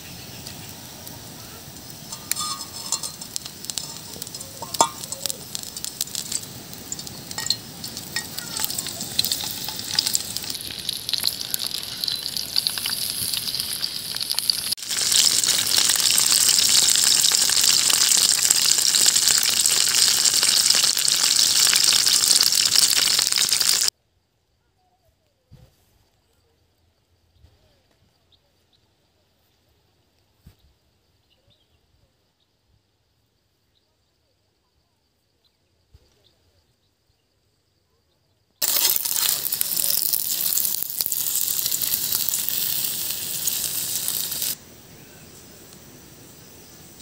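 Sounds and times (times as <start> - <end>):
oil sizzling in frying pan: 0.0 - 23.9, 38.6 - 47.0
small crackles: 0.0 - 23.9, 38.6 - 44.6.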